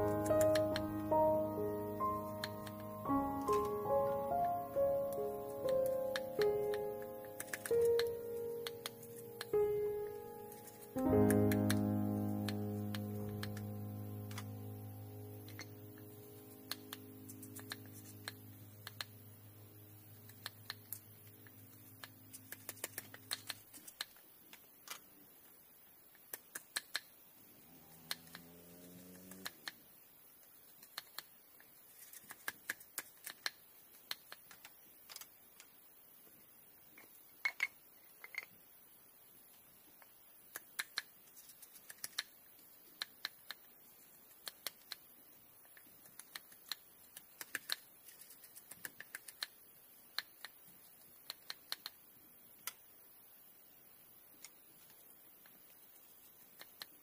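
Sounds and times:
guitar music: 0.0s - 19.8s
sharp clicks and light taps: 5.1s - 14.5s, 15.4s - 19.2s, 20.2s - 25.0s, 26.1s - 27.1s, 30.7s - 31.3s.

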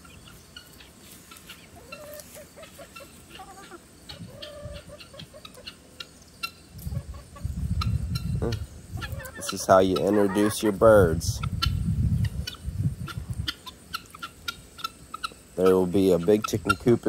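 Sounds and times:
chick peeps: 0.0s - 17.0s
chickens clucking: 0.0s - 17.0s
low rumble on microphone: 6.8s - 9.1s, 10.8s - 13.5s.

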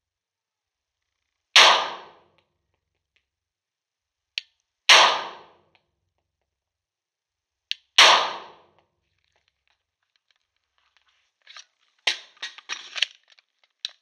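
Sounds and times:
pistol shots with echo: 1.6s - 2.2s, 4.9s - 5.6s, 7.9s - 8.7s.

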